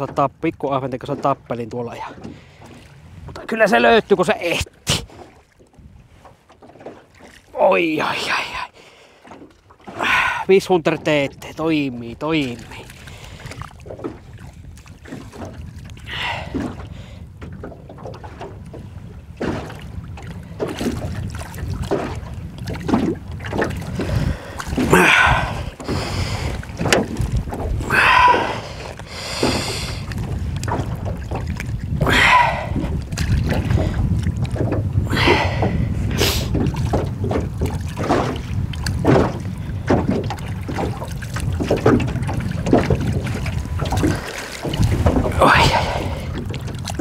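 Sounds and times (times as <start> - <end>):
water splashing: 0.0 - 47.0
waves lapping against boat hull: 0.0 - 47.0
wind on microphone: 9.9 - 47.0.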